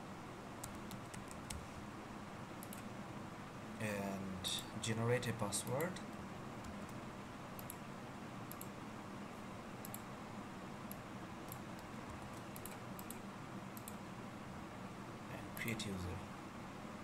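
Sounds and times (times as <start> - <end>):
low room hiss: 0.0 - 17.0
mouse and keyboard clicks: 11.5 - 13.2.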